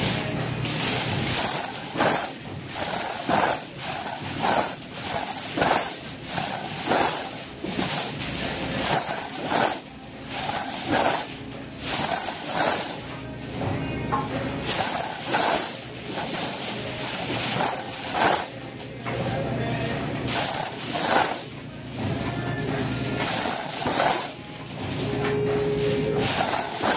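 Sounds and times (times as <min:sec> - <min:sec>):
steel chains clanking: 0:00.0 - 0:26.9.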